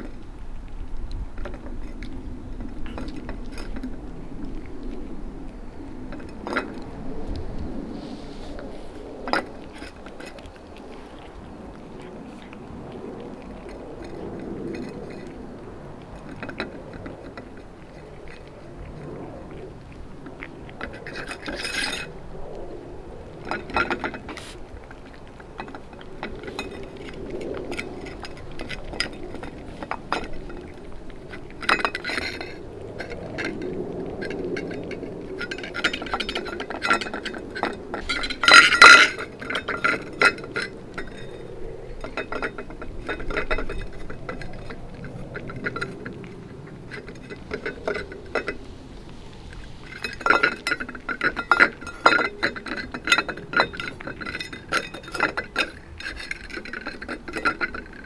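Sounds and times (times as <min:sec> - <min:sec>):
cats eating from a metal bowl: 0:00.0 - 0:58.0
metal bowl clinking: 0:34.6 - 0:48.7, 0:49.5 - 0:58.0.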